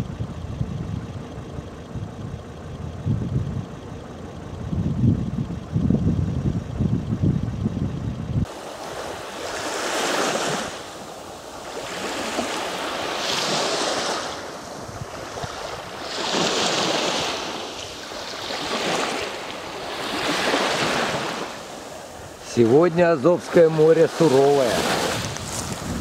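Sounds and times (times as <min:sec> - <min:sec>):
low vehicle engine rumble: 0:00.0 - 0:09.5, 0:10.7 - 0:26.0
surf breaking on shore: 0:08.5 - 0:26.0.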